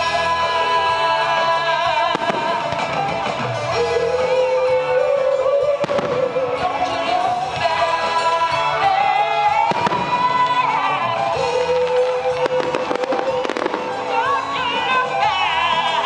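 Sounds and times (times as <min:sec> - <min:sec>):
music with gliding melody: 0:00.0 - 0:16.0.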